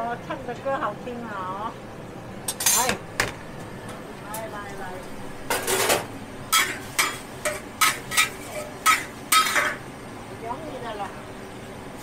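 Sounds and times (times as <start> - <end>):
steady frying hiss: 0.0 - 12.0
metal utensils clanking on a wok: 2.5 - 3.0, 5.5 - 9.8
spatula scraping a wok: 6.5 - 9.8.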